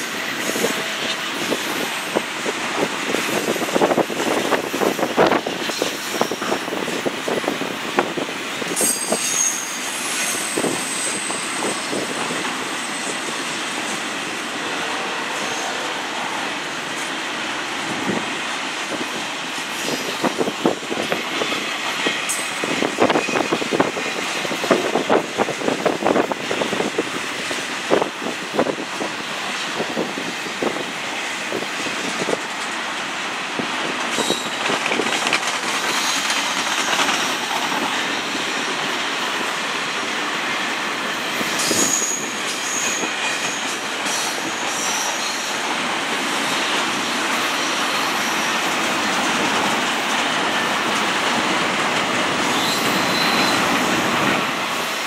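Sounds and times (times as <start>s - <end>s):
freight train rolling past: 0.0s - 55.0s
high wheel squeals: 8.8s - 12.1s, 35.8s - 36.5s, 41.1s - 45.6s, 52.4s - 53.9s
wheel clacks over rail joints: 34.0s - 38.0s.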